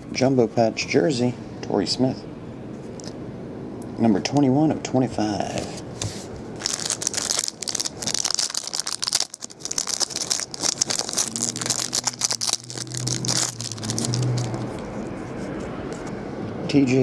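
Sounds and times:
low steady hum: 0.0s - 17.0s
cards rustling: 6.0s - 16.1s
foil pack tearing and crinkling: 6.6s - 14.9s.

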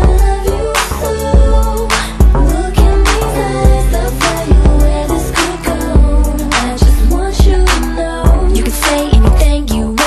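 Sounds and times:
r and b song with steady beat: 0.0s - 10.0s.

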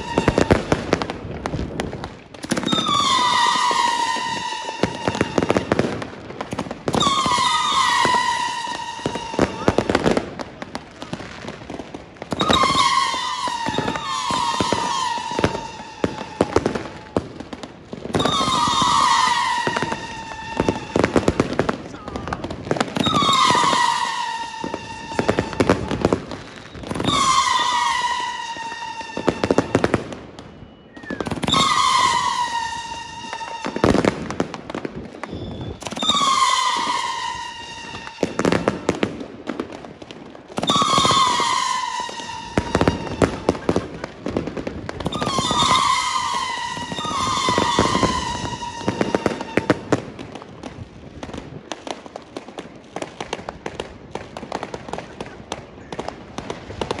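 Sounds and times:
shrill falling whistle: 0.0s - 0.5s, 2.6s - 5.7s, 7.0s - 9.7s, 12.3s - 16.6s, 18.2s - 21.0s, 23.0s - 25.7s, 26.4s - 29.7s, 30.5s - 33.8s, 35.2s - 38.6s, 40.6s - 43.6s, 45.1s - 49.7s
fireworks bangs and crackles: 0.0s - 57.0s.

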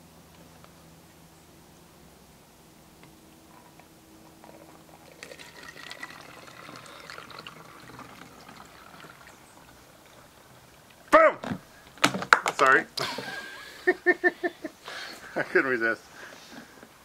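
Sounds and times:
liquid trickling through a funnel: 4.4s - 11.1s.

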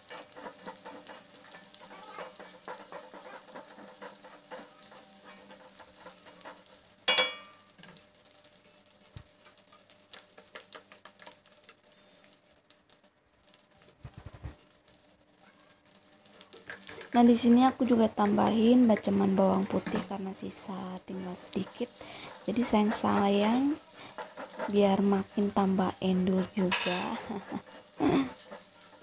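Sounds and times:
spice paste sizzling in a wok: 0.0s - 29.0s
spatula clinking on pan: 7.1s - 7.8s, 26.7s - 27.1s.

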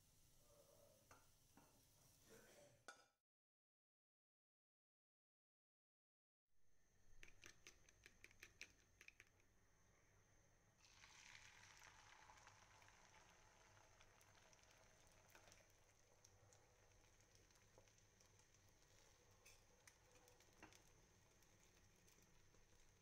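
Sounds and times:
fork beating eggs in a bowl: 7.2s - 9.4s
egg sizzling in frying pan: 10.8s - 23.0s.

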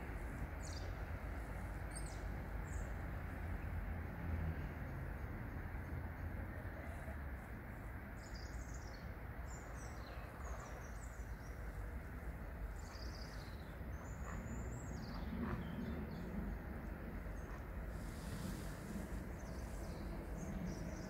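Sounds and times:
outdoor background rush: 0.0s - 21.0s.

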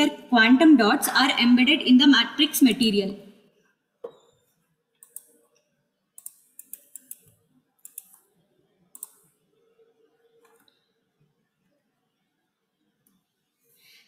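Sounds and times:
computer mouse clicking: 5.0s - 5.6s, 6.2s - 8.3s, 8.9s - 9.4s.

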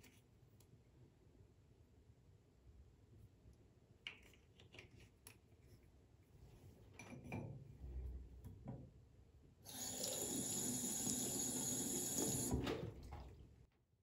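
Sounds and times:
tap water running into sink: 9.7s - 13.4s.

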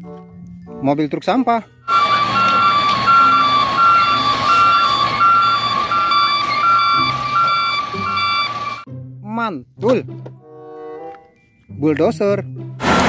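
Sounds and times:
truck backup alarms beeping: 1.8s - 8.9s.

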